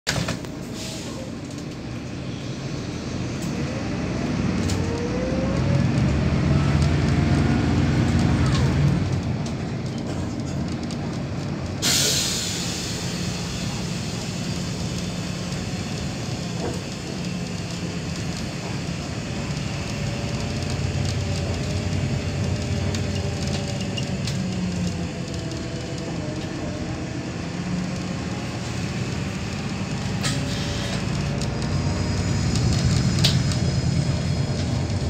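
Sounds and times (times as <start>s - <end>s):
bus diesel engine with gear whine: 0.1s - 35.0s
compressed air hiss: 11.8s - 14.3s.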